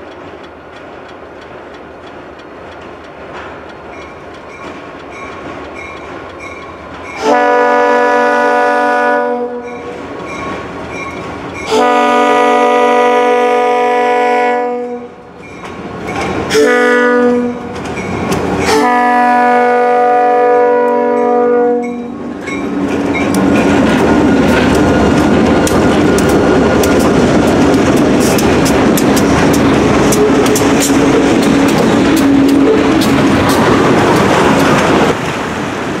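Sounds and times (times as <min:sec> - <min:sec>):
wheels clicking over rail joints: 0:00.0 - 0:07.5, 0:09.6 - 0:12.0, 0:15.3 - 0:19.6, 0:20.2 - 0:35.3
locomotive air horn chord: 0:07.2 - 0:09.8, 0:11.7 - 0:15.2, 0:16.5 - 0:17.7, 0:18.7 - 0:22.2
locomotives running past: 0:22.3 - 0:36.0.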